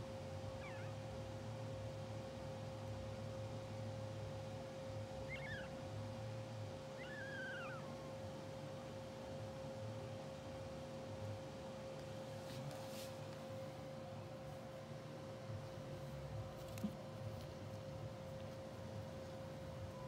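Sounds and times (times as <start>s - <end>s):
steady hum with pitched tone: 0.0s - 20.0s
puppies squeaking faintly: 0.5s - 1.2s, 5.1s - 5.9s, 6.8s - 8.4s.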